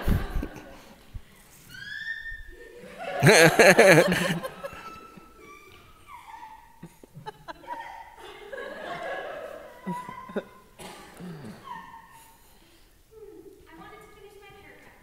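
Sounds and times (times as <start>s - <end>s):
audience laughing: 2.7s - 5.4s, 6.8s - 10.7s.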